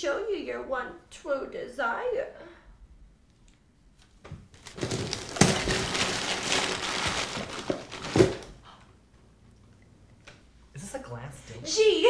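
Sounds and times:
tissue paper rustling: 4.6s - 8.5s.

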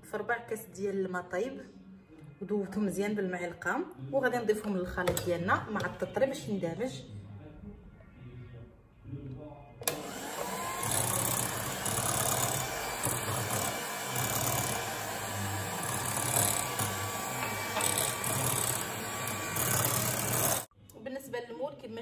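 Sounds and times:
electric hand mixer whipping: 9.8s - 20.7s.

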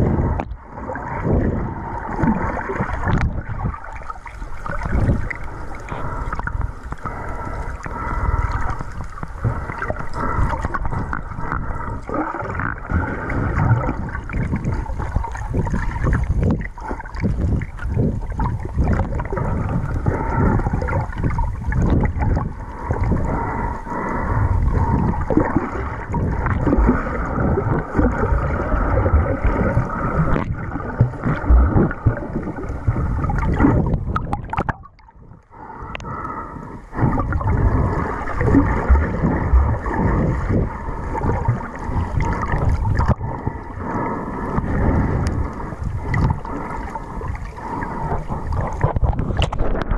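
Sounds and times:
muffled underwater churning: 0.0s - 49.9s
low underwater thumps: 28.9s - 35.0s, 48.3s - 49.9s.

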